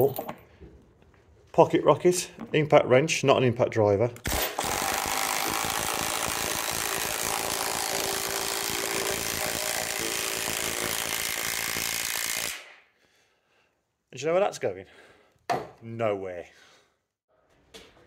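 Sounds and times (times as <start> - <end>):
impact wrench hammering: 4.3 - 12.7.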